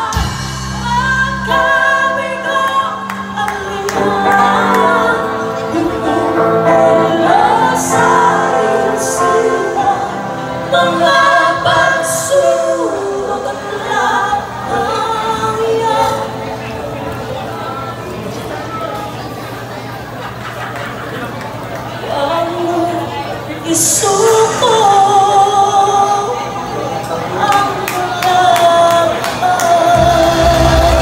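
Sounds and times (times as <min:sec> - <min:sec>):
pop-rock band playing: 0:00.0 - 0:16.6, 0:23.7 - 0:31.0
women singing together: 0:00.0 - 0:16.6, 0:23.7 - 0:31.0.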